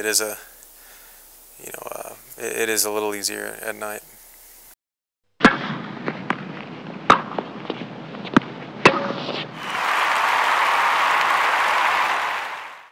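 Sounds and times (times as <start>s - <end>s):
crackling hiss: 0.0s - 4.8s.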